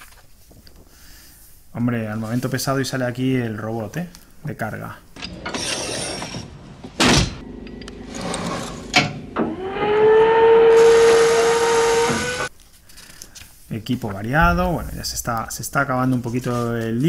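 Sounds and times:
motor whine: 7.4 - 12.5.

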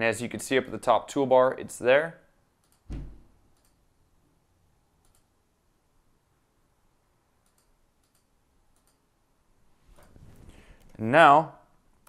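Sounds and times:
computer mouse clicks: 2.6 - 3.0, 3.6 - 3.8, 5.0 - 5.3, 7.4 - 9.0.

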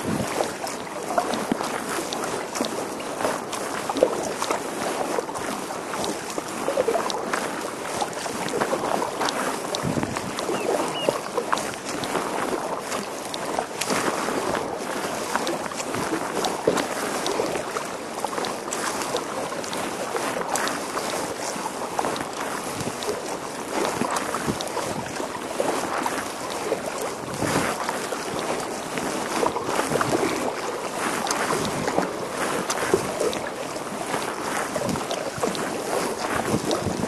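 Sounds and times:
wind buffeting microphone: 0.0 - 0.6, 9.7 - 12.2, 36.2 - 37.0
paddle splashes: 0.0 - 37.0
water lapping against kayak hull: 0.0 - 37.0.

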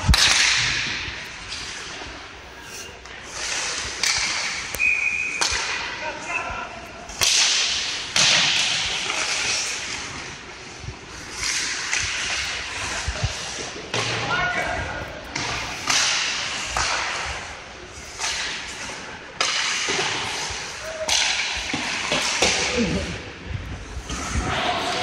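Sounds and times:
hockey stick and puck cracks: 0.0 - 2.0, 3.0 - 6.0, 7.1 - 10.3, 11.1 - 14.3, 15.3 - 17.4, 18.0 - 22.8
skates scraping on ice: 0.0 - 25.0.

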